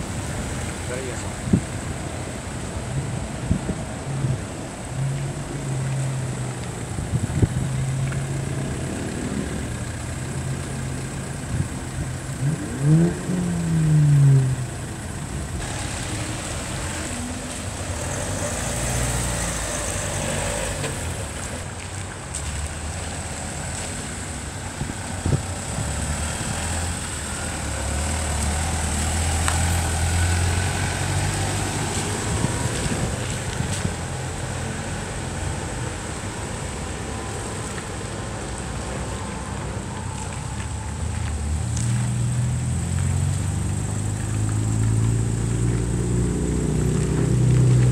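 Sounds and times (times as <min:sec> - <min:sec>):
cars driving past: 0:00.0 - 0:47.9
tyre hiss on wet road: 0:00.0 - 0:47.9
engine revving: 0:12.3 - 0:14.9, 0:15.6 - 0:21.6, 0:25.6 - 0:33.8.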